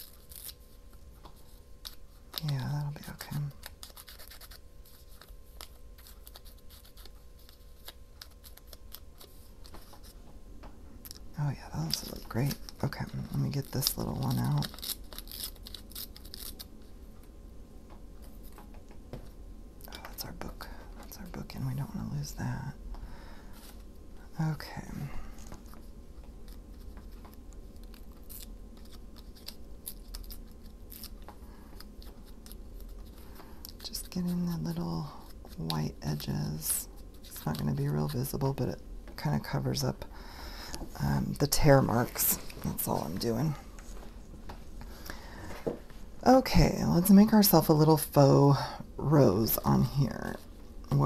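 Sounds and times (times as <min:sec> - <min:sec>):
paper crackling: 0:00.0 - 0:10.2, 0:11.6 - 0:16.9, 0:25.5 - 0:35.8
faint steady hum: 0:00.0 - 0:51.0
paper scraping and rustling: 0:01.4 - 0:10.2.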